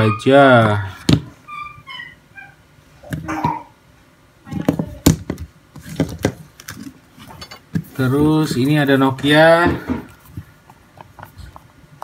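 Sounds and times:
short high chirping tones: 1.4 - 2.6.

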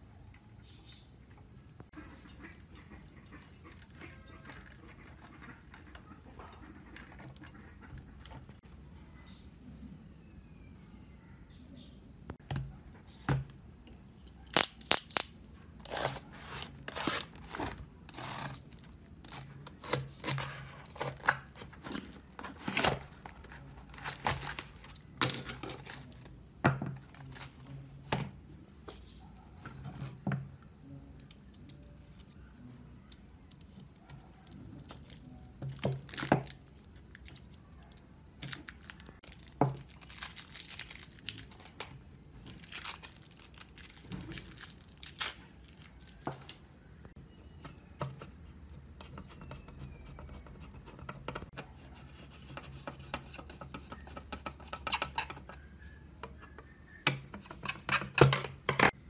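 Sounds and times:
cardboard and tape ripping: 14.5 - 26.2
plastic wrapping crinkling: 38.4 - 46.6.

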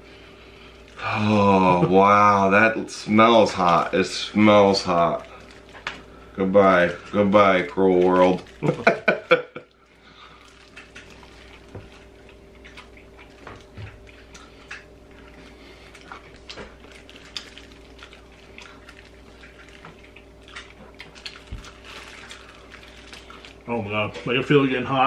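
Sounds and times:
faint hum: 0.0 - 25.0
wet chewing mouth smacks: 10.0 - 23.7.

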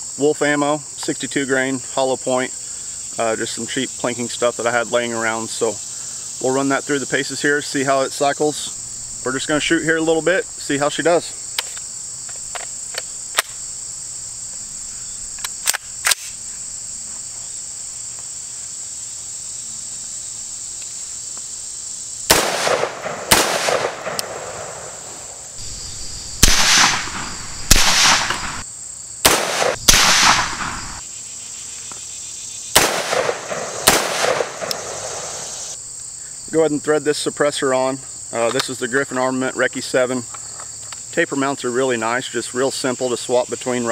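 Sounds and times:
insects buzzing: 0.0 - 43.9
pistol shots with echo: 22.3 - 25.4, 26.4 - 28.6, 29.2 - 31.0, 32.8 - 35.4.

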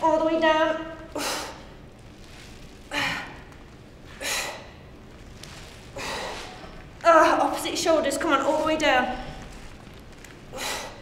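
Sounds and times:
woman breathing hard: 4.1 - 4.9, 5.9 - 6.9, 10.4 - 11.0.

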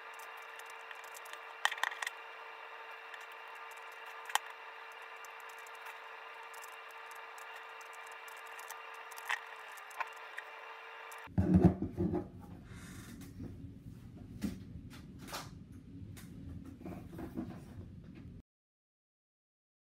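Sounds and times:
steady hum: 0.0 - 11.4.

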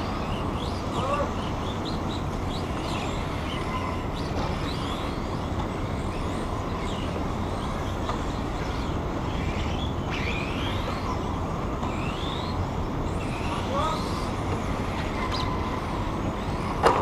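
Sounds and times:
steady noisy rumble: 0.0 - 17.0.

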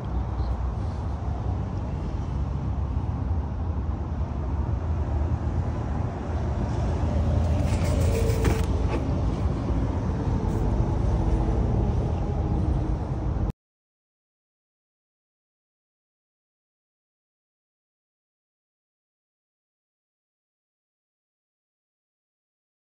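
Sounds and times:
steady low rumble: 0.0 - 13.5
cargo cover being pulled out: 7.5 - 9.1.

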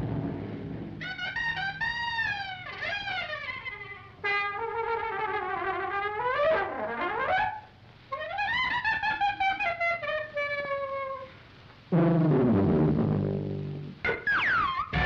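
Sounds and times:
jazz band cartoon music: 0.0 - 11.3, 12.0 - 15.0
trumpet wavering phrases: 1.0 - 11.3.

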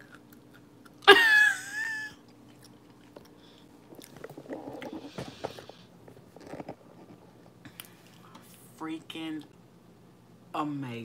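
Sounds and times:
crunching and chewing: 0.0 - 1.1, 2.2 - 8.4.

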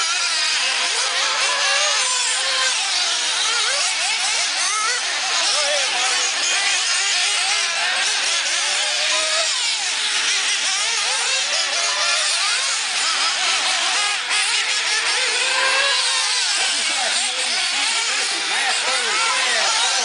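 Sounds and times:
rc car engines whining: 0.0 - 20.0.

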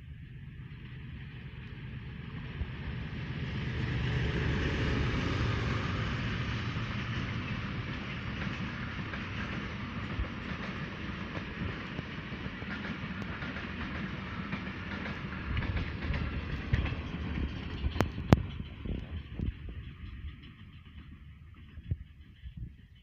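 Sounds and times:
diesel locomotive passing: 0.0 - 23.0
wheel-on-rail rumble: 0.0 - 23.0
wheels clicking over rail joints: 6.3 - 22.6.

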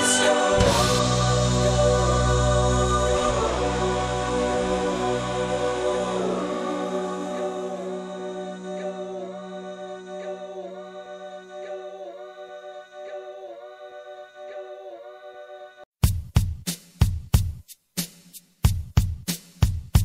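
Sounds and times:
layered voices holding chords: 0.0 - 15.6.

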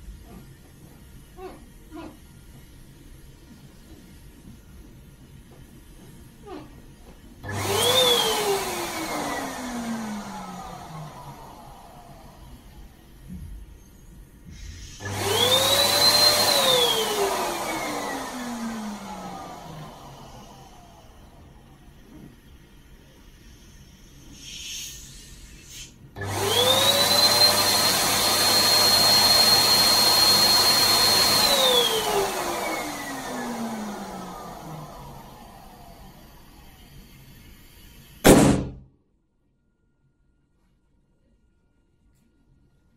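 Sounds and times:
electric air pump motor whine: 7.4 - 13.0, 14.6 - 21.7, 25.4 - 37.8.

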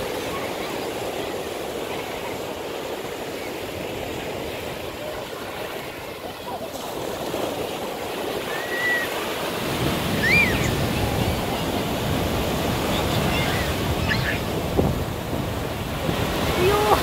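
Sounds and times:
ocean surf breaking on sand: 0.0 - 17.0.

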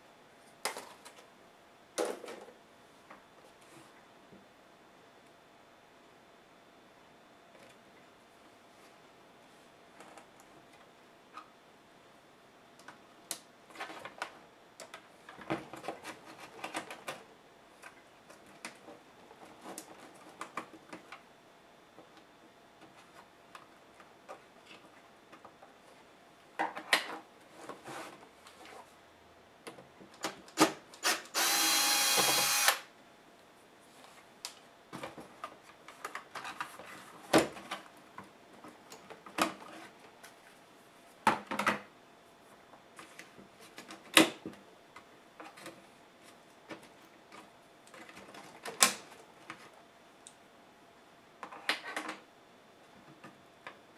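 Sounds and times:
mechanical whirr: 31.0 - 32.9.

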